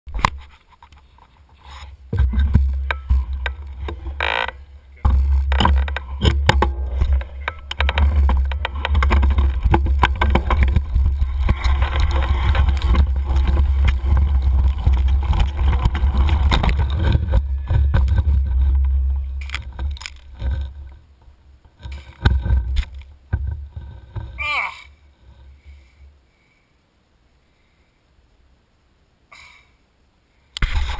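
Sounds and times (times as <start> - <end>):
bike rattling over rocky trail: 0.1 - 24.4
wind rumble on microphone: 5.0 - 21.0.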